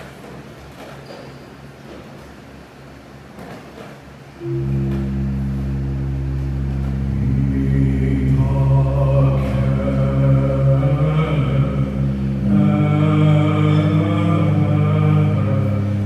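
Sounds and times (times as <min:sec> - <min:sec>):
pipe organ chord: 0:04.4 - 0:16.0
man chanting: 0:05.8 - 0:16.0.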